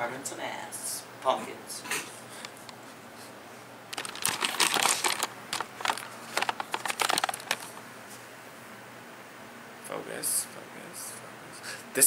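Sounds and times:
camera handling clicks and rustles: 3.9s - 7.8s.

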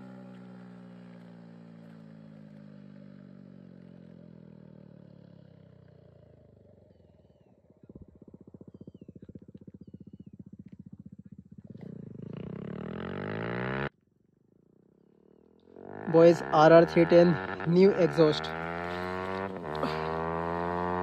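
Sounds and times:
motorcycle riding away: 0.0s - 21.0s
bird chirps: 7.8s - 10.6s
low pulsing engine beat: 15.9s - 21.0s.

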